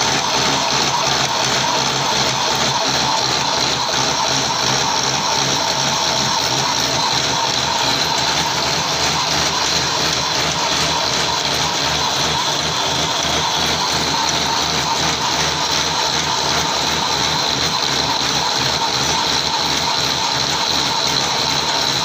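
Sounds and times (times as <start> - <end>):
metal lathe boring: 0.0 - 22.0.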